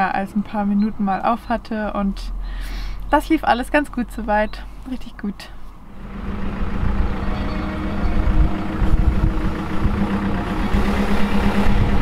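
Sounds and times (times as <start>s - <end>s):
van engine running: 0.0s - 12.0s.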